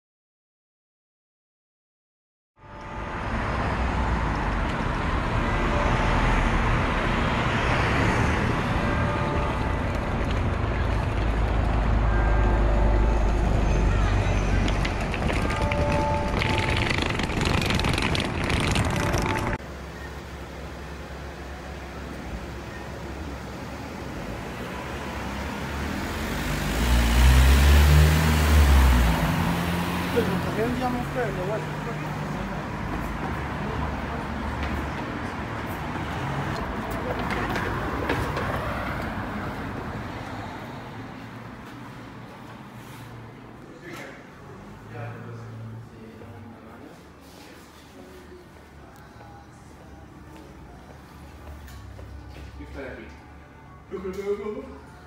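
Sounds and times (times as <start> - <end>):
road traffic: 2.6 - 55.0
vehicle passing by: 23.5 - 43.5.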